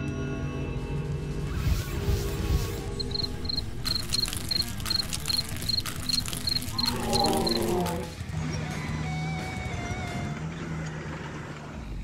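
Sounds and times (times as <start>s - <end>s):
cricket chirping: 3.0s - 8.1s.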